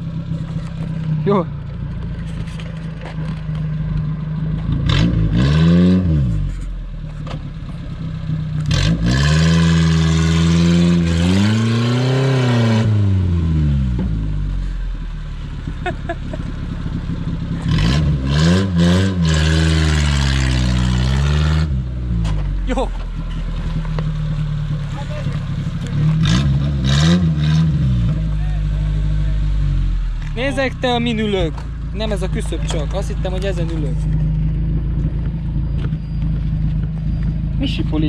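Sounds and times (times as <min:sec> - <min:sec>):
vehicle knocks and scraping: 0:00.3 - 0:05.0, 0:22.1 - 0:26.2, 0:31.3 - 0:37.6
engine revving hard: 0:04.8 - 0:06.5, 0:08.6 - 0:14.3, 0:17.6 - 0:21.9, 0:25.8 - 0:28.2.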